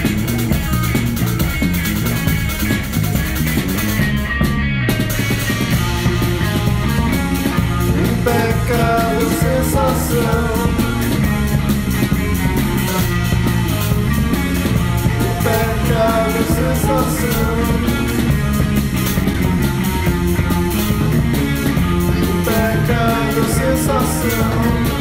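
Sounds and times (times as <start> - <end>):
drum kit: 0.0 - 25.0
electric bass: 0.0 - 25.0
electric guitar: 0.0 - 25.0
men singing: 7.7 - 11.4, 15.0 - 18.6, 22.0 - 25.0.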